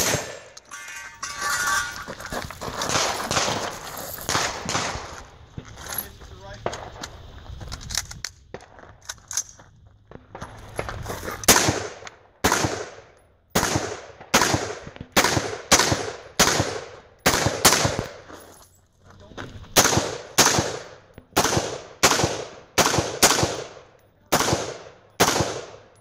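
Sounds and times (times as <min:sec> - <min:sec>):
rifle shots with echo: 0:00.0 - 0:00.6, 0:02.9 - 0:05.2, 0:11.5 - 0:18.2, 0:19.7 - 0:26.0.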